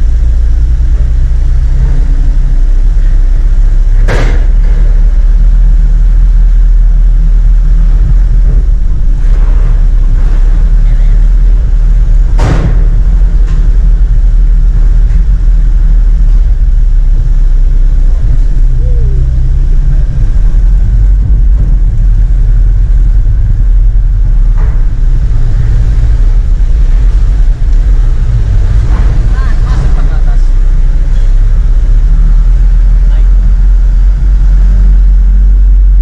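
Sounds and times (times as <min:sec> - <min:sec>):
truck engine rumble: 0:00.0 - 0:36.0
sharp knock: 0:04.0 - 0:05.1, 0:12.2 - 0:14.5.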